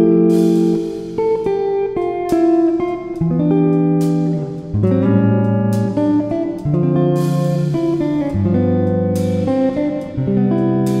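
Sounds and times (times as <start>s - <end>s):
plucked guitar music with bass: 0.0s - 11.0s.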